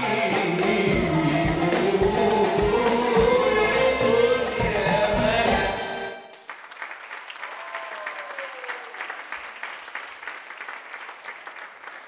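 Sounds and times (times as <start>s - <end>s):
audience applause: 6.3s - 12.0s.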